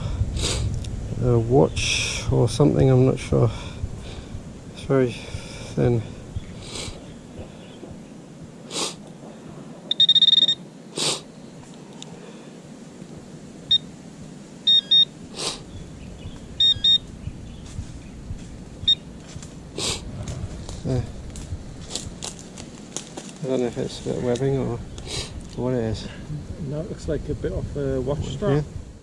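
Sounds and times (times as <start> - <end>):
metal detector beeping: 9.9 - 10.6, 14.7 - 15.1, 16.6 - 17.1, 18.8 - 19.1.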